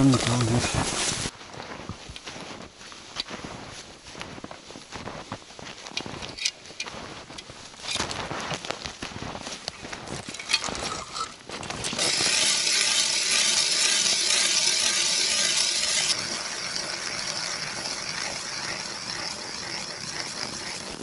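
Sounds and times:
footsteps in deep snow: 0.0s - 12.3s
ice auger grinding scrape: 9.7s - 21.0s.

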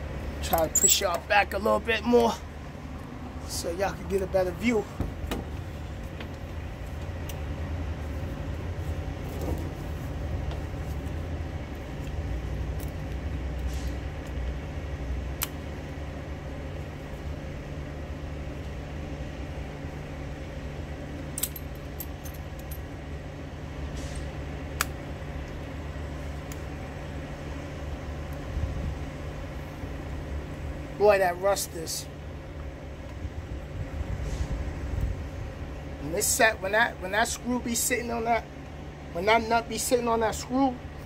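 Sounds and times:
low engine rumble: 0.0s - 41.0s
hand tools clinking on metal fittings: 0.4s - 1.2s.

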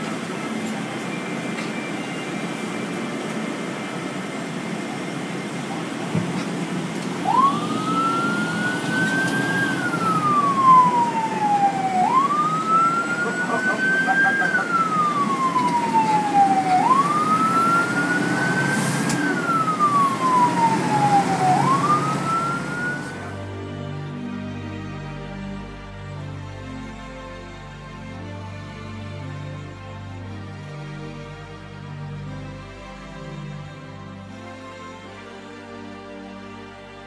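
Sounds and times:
fire truck siren wailing: 0.0s - 26.3s
truck engine: 0.0s - 28.3s
road noise: 0.0s - 37.0s.

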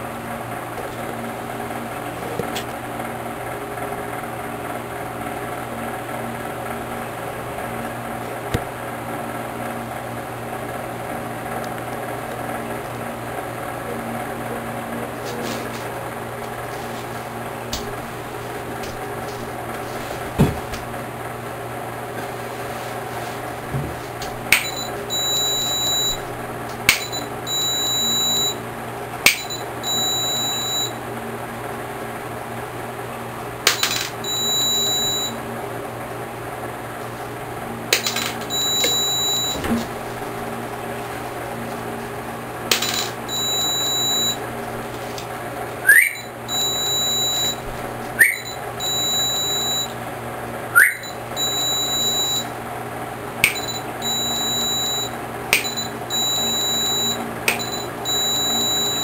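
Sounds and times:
steady low hum: 0.0s - 59.0s
high electronic beeping: 24.6s - 26.2s, 26.9s - 28.6s, 29.4s - 31.0s, 34.2s - 35.4s, 38.1s - 39.6s, 42.8s - 44.4s, 45.9s - 47.6s, 48.2s - 49.9s, 50.8s - 52.5s, 53.4s - 59.0s.

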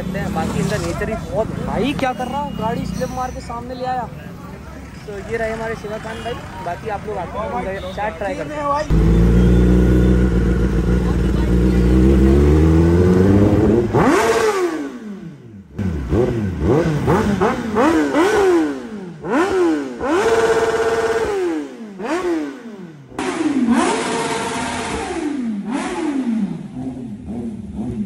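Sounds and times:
motorcycle engine revving: 8.9s - 28.0s.

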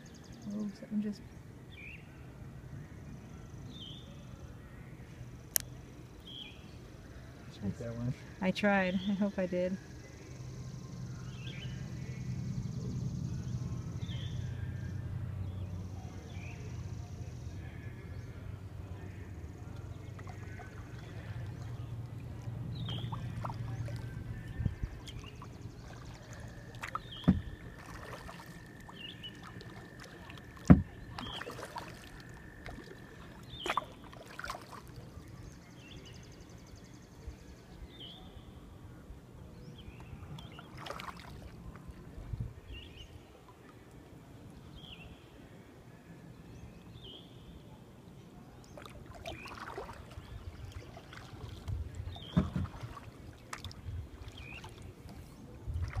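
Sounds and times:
paddle strokes and drips: 18.7s - 37.6s, 39.8s - 44.9s, 47.4s - 56.0s
bird chirping: 22.7s - 27.8s
paddle knocking kayak hull: 26.8s - 28.4s, 29.7s - 31.9s, 51.1s - 53.7s.

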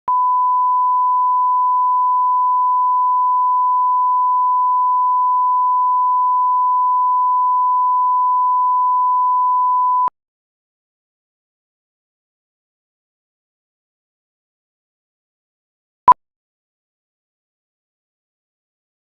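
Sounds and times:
steady test tone beep: 0.1s - 10.1s.

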